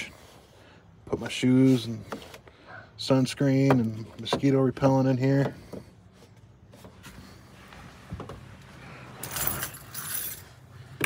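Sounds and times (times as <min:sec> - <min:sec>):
jingling rattle: 0:09.2 - 0:10.6.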